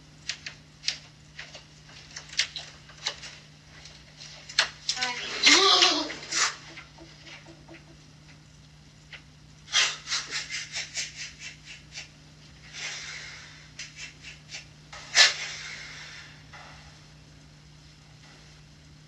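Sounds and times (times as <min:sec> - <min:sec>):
baby monitor electrical hum: 0:00.0 - 0:19.0
man breathing heavily: 0:11.0 - 0:14.6, 0:15.2 - 0:16.9.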